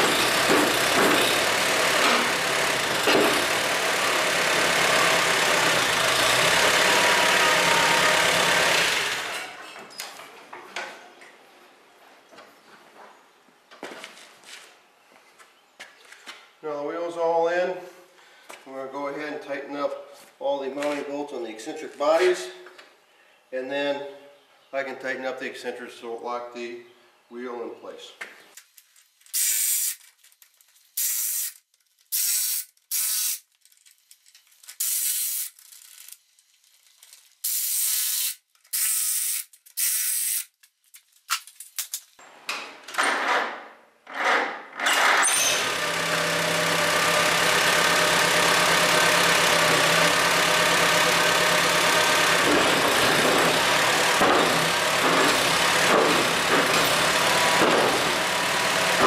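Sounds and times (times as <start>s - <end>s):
tractor engine cranking: 0.0s - 9.6s, 44.7s - 59.0s
tractor engine idling: 45.9s - 59.0s.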